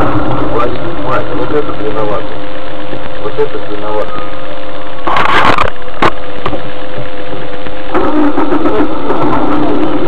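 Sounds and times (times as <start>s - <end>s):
electrical hum: 0.0s - 10.0s
man talking: 0.4s - 2.3s, 3.2s - 4.3s
loud noisy crunch: 7.9s - 10.0s.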